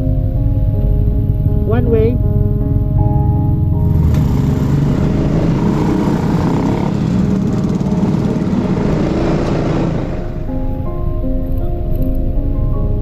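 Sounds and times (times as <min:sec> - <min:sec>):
road noise: 0:00.0 - 0:13.0
scooter engine running: 0:02.7 - 0:10.6.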